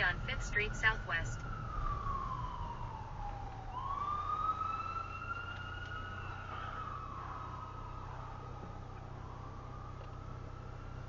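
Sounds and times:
car engine and road hum: 0.0s - 11.0s
emergency vehicle siren wailing: 0.0s - 11.0s.

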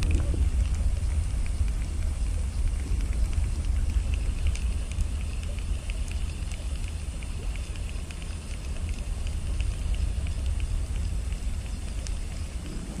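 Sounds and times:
wind buffeting microphone: 0.0s - 7.2s, 9.0s - 13.0s
faint crackling ticks: 0.0s - 13.0s.

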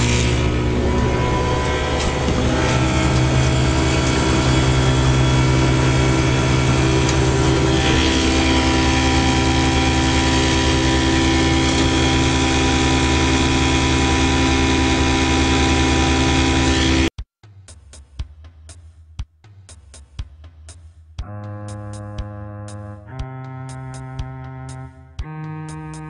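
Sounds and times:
outboard motor running: 0.0s - 17.1s.

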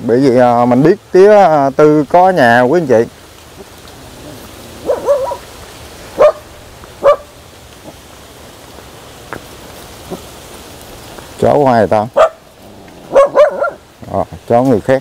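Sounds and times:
dog barking: 4.8s - 5.5s, 6.1s - 7.4s, 12.1s - 12.5s, 13.1s - 13.8s.

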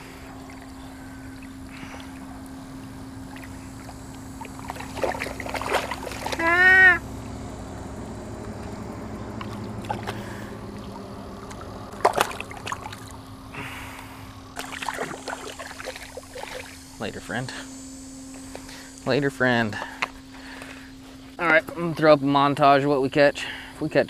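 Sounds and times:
flowing water: 0.0s - 7.3s, 9.2s - 17.4s
fish splashing in shallow water: 0.0s - 7.7s, 9.2s - 17.0s.

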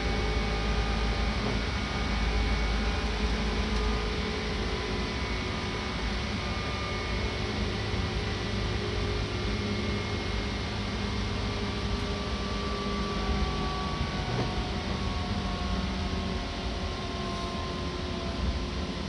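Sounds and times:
faint whining tones: 0.0s - 19.0s
hum from under floor: 0.0s - 19.0s
train wheels rumbling on rails: 13.9s - 16.3s.

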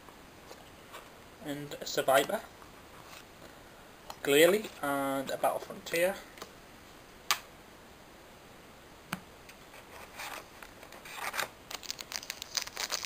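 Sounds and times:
foil pack rustling and crinkling: 10.0s - 13.0s.

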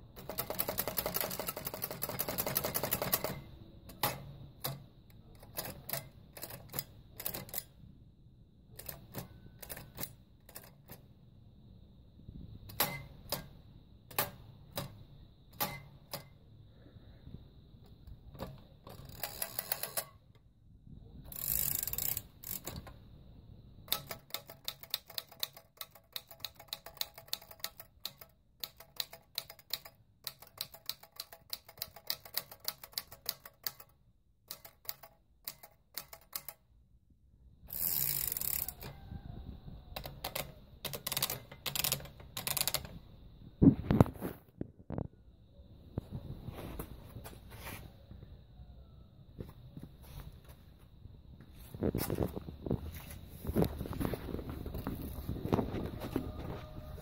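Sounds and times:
typewriter keystrokes clacking: 0.2s - 7.7s, 8.8s - 11.0s, 12.7s - 13.5s, 23.9s - 33.9s, 34.5s - 36.6s, 40.0s - 43.0s
typewriter rasping bursts: 0.2s - 7.7s, 40.0s - 42.9s.

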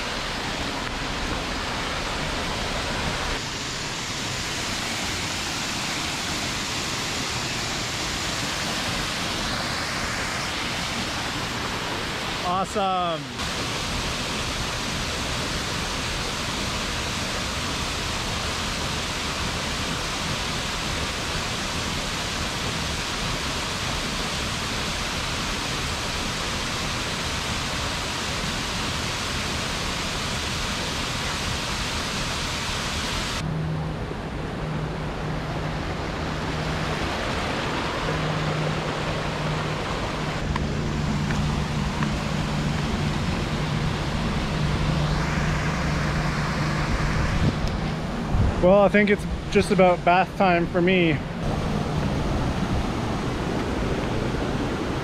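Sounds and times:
creek over small cascades: 0.0s - 33.4s, 35.4s - 55.0s
waterfall rushing: 0.0s - 33.5s, 34.6s - 55.0s
steady low hum: 27.2s - 55.0s.

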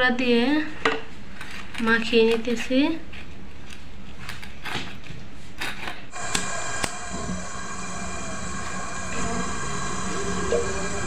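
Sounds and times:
steady hum of held tones: 6.1s - 11.0s.

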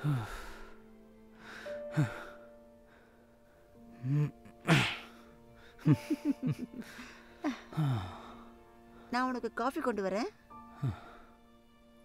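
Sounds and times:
soft background music: 0.0s - 12.0s
people laughing: 5.8s - 7.6s.

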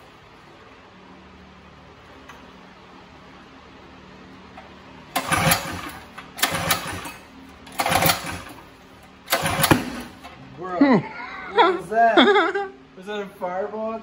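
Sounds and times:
engine pull-start cranking: 5.1s - 10.4s.

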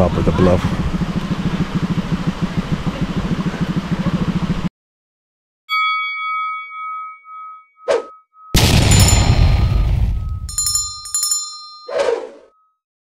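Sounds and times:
small engine running: 0.0s - 4.7s
bright chime: 5.7s - 12.7s.

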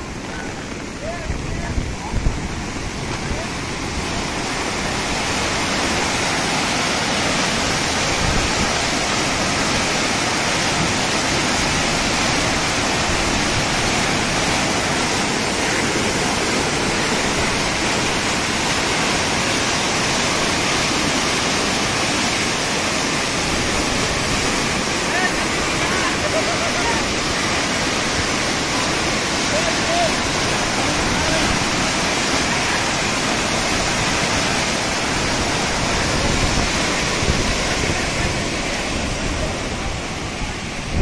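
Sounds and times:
flood water rushing: 0.0s - 41.0s.

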